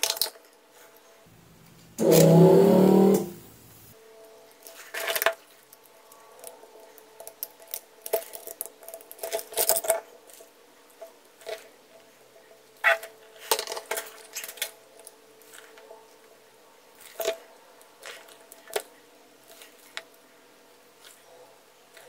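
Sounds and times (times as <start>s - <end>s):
small metallic clicks and scrapes: 4.3s - 20.2s.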